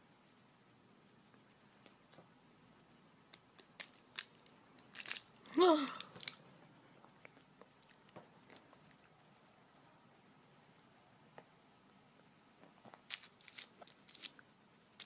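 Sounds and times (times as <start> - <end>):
candy wrapper crinkling: 3.3 - 6.4, 13.0 - 14.4.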